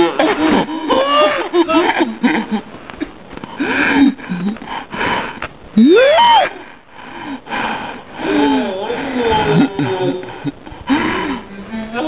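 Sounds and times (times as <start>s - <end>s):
women laughing: 0.1s - 2.7s, 9.3s - 11.0s
women shrieking: 5.8s - 6.6s.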